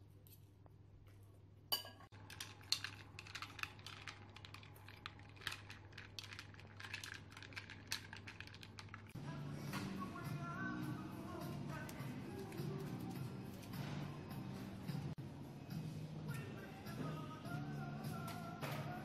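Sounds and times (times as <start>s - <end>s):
spoon clinking ice in glass: 1.7s - 8.6s
background music: 9.2s - 19.0s.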